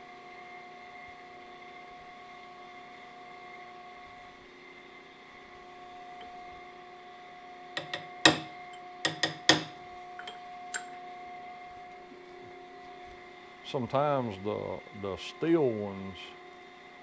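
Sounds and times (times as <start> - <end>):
steady machine hum: 4.7 - 17.0
hammer striking steel punch: 7.8 - 11.0.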